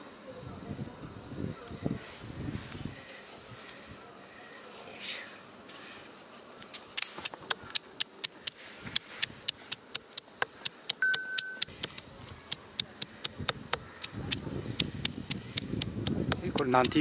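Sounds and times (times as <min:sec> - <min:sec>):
rapid sharp clicks: 0:06.8 - 0:17.0
high whistle-like tone: 0:11.0 - 0:11.7.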